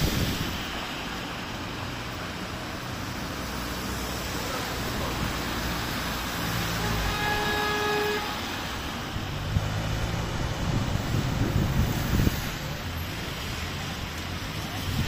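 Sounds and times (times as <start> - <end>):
car engines: 0.0 - 15.0
rain and tyres hissing: 0.0 - 15.0
car horn: 6.7 - 8.7.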